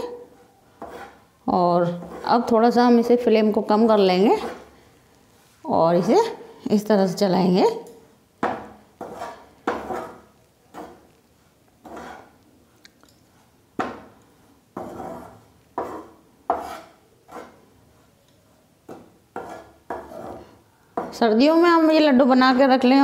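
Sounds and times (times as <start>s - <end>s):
spatula scraping flour in pan: 0.1s - 2.6s, 3.9s - 4.8s, 8.5s - 12.4s, 13.4s - 21.2s.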